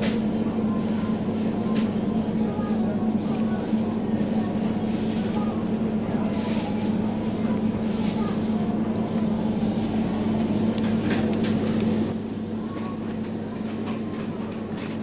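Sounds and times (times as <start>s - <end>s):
freezer cabinets humming: 0.0s - 15.0s.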